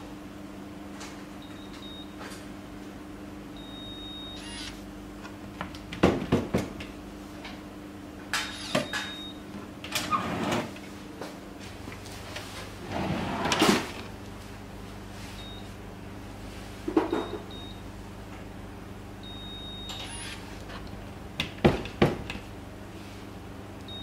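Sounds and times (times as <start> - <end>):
drawer lock short high beep: 19.6 - 20.4.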